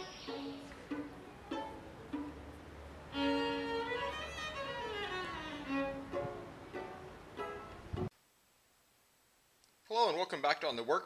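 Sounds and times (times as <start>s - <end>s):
violin melody: 0.0s - 8.1s.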